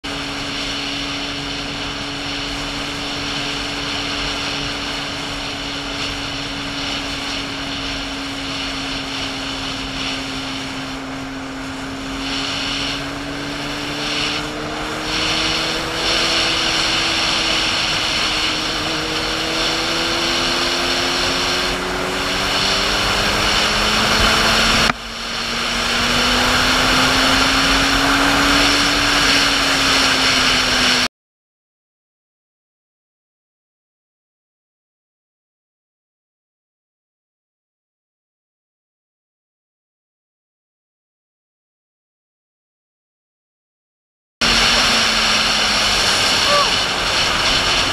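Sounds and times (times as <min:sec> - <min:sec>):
motorcycle engine revving: 0:00.0 - 0:31.1, 0:44.4 - 0:47.9
wind noise: 0:00.0 - 0:31.1, 0:44.4 - 0:47.9.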